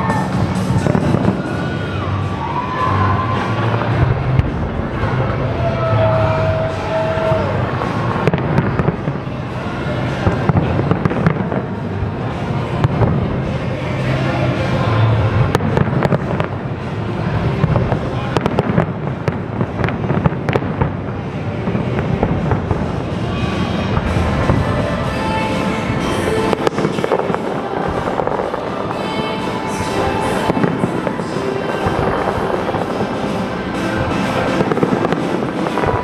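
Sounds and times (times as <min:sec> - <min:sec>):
firework cracks: 0:26.1 - 0:36.0.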